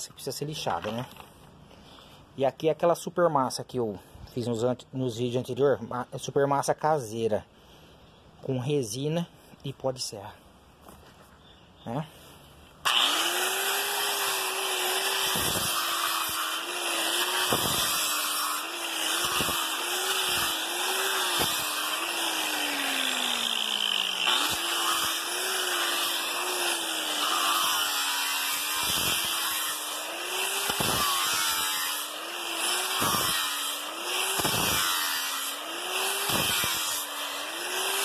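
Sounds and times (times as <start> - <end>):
angle grinder motor whine: 12.8 - 38.0.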